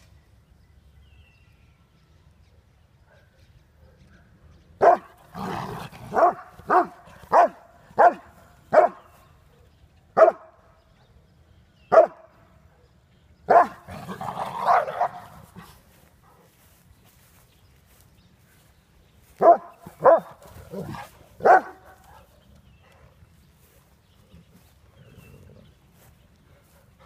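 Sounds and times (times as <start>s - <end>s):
dog barking: 3.1s - 5.1s, 6.1s - 9.0s, 10.2s - 10.5s, 11.9s - 12.2s, 13.5s - 13.8s, 14.6s - 15.4s, 19.4s - 22.2s.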